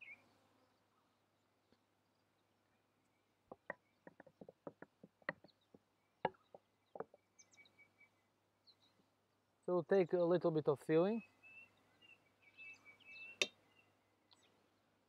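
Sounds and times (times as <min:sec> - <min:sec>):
dough knocking on wooden board: 0:03.5 - 0:07.2.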